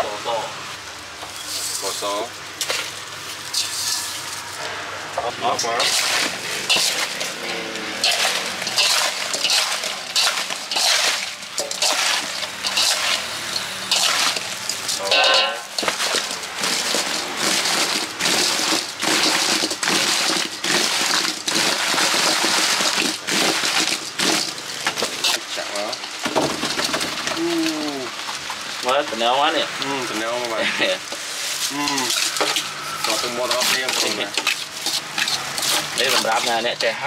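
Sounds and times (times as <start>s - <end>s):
fruit and spoon scraping a metal bowl: 3.5s - 4.6s, 5.6s - 25.4s, 32.0s - 36.7s.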